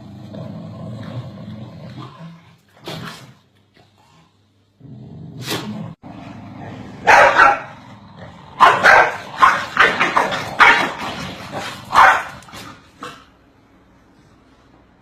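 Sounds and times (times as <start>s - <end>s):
dogs barking: 7.0s - 7.8s, 8.6s - 13.2s.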